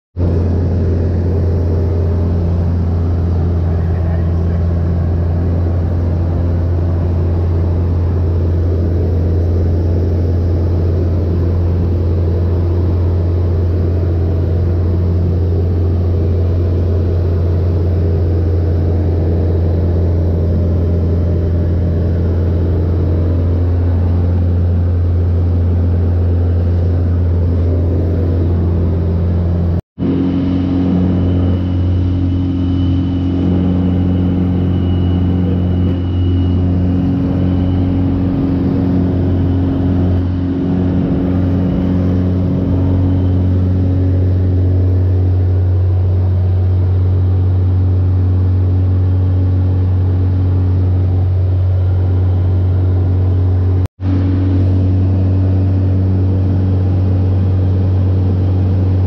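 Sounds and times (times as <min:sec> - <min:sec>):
light aircraft engine drone: 0:00.2 - 0:59.0.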